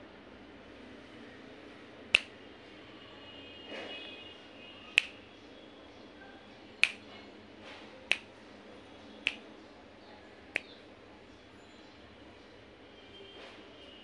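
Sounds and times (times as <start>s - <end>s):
fingers snapping: 2.1s - 2.3s, 5.0s - 5.2s, 6.8s - 7.0s, 8.1s - 8.3s, 9.2s - 9.4s.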